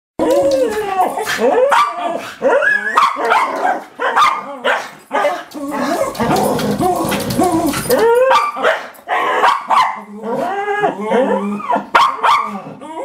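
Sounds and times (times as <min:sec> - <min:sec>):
dogs whining: 0:05.2 - 0:09.4, 0:10.0 - 0:13.0.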